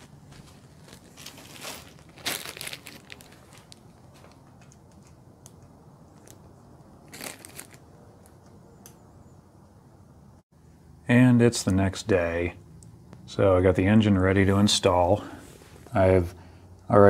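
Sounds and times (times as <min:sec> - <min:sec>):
rustling and crinkling: 0:00.0 - 0:08.5.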